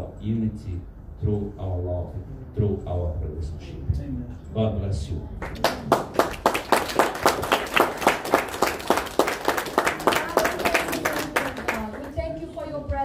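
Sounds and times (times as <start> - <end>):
congregation applauding: 5.4 - 12.2.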